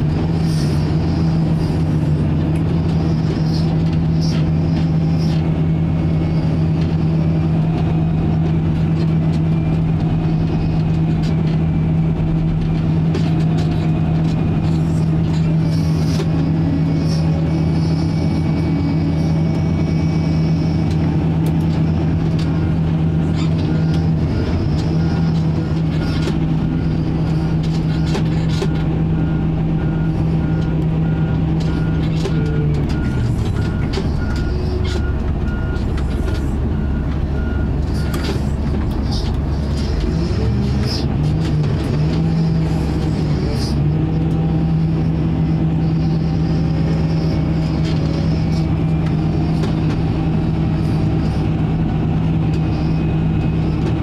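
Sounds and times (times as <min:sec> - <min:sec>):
wheel loader diesel engine: 0:00.0 - 0:54.0
reversing alarm beeps: 0:14.6 - 0:39.0, 0:44.3 - 0:54.0.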